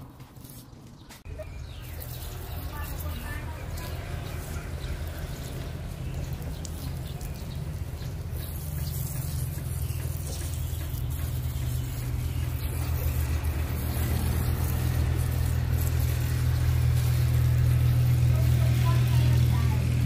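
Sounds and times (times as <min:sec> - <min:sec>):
engine humming: 0:00.0 - 0:20.0.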